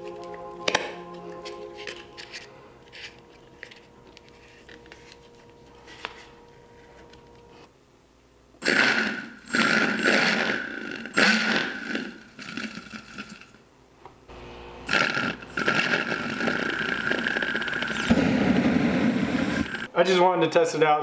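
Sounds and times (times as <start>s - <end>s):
small motor whining: 14.3s - 19.9s.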